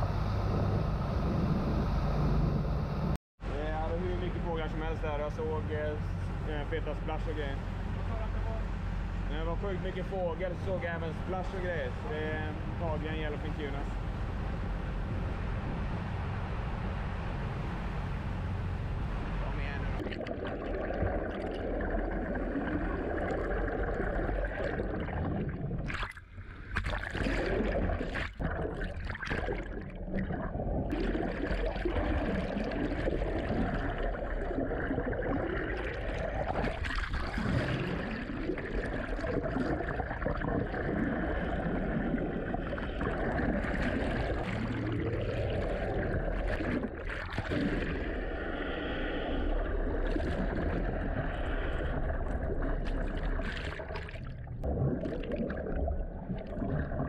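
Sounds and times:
low wavering drone: 0.0s - 3.2s
underwater water rush and bubbles: 20.0s - 57.0s.

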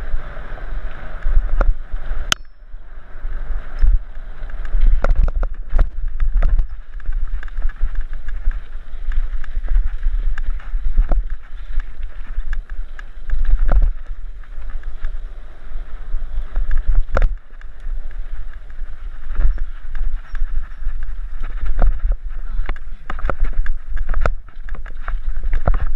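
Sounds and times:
bike rattling over bumps: 0.0s - 25.9s
wind buffeting microphone: 0.0s - 25.9s
tyres rushing on dirt: 3.1s - 25.9s.

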